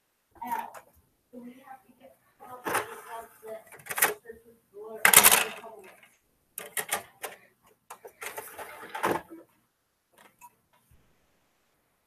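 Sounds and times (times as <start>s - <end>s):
objects clicking and tapping: 5.0s - 9.4s.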